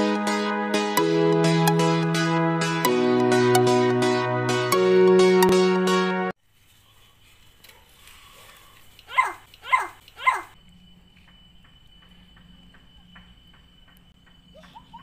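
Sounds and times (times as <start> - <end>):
soft regular ticks: 7.5 - 10.5
animal cries falling in pitch: 9.1 - 10.6
faint high whine: 10.5 - 15.0.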